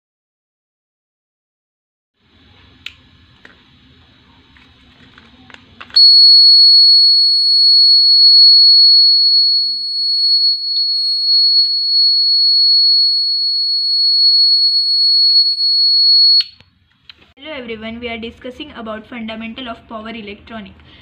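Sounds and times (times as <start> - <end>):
high-pitched alarm buzzer tone: 6.0 - 16.6.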